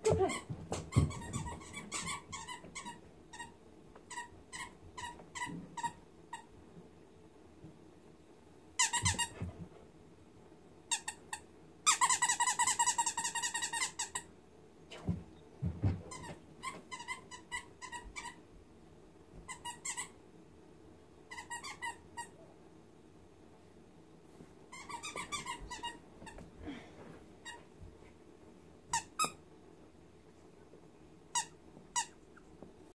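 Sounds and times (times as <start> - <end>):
squeaky dog toy squeaking: 11.9 - 14.2, 16.2 - 18.4, 21.3 - 22.3, 24.7 - 26.0, 28.9 - 29.4, 31.3 - 32.2.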